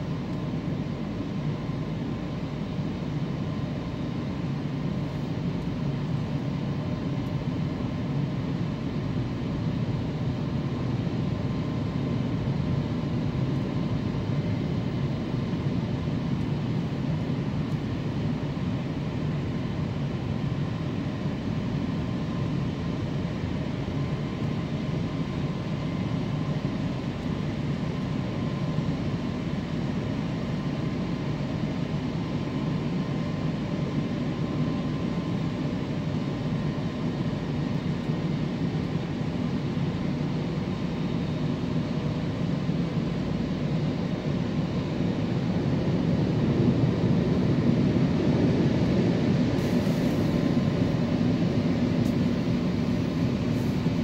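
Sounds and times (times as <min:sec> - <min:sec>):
faint motor whine: 0:16.0 - 0:54.0.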